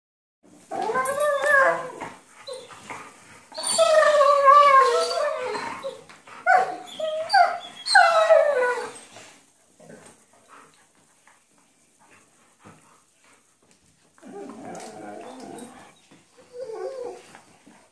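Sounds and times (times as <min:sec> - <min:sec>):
dogs whining and howling: 0:00.6 - 0:02.9, 0:03.5 - 0:09.2, 0:14.2 - 0:17.5.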